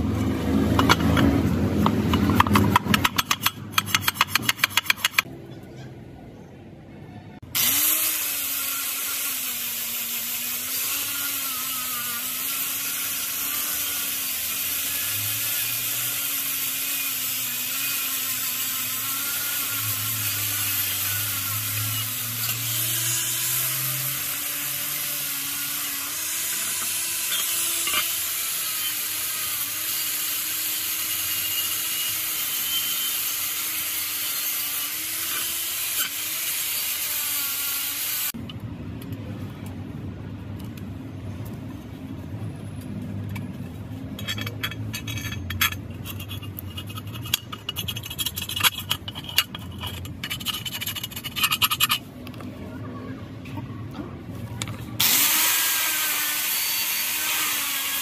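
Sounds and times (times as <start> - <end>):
wire brush scratching metal: 2.0 - 5.3, 44.1 - 52.2
angle grinder motor whine: 7.5 - 38.4, 55.0 - 58.0.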